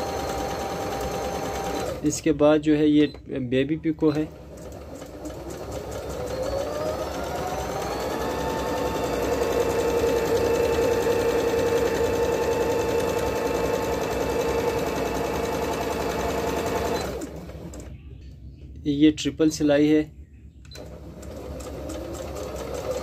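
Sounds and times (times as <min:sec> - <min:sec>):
sewing machine motor whine: 0:00.0 - 0:02.0, 0:04.1 - 0:17.9, 0:20.7 - 0:23.0.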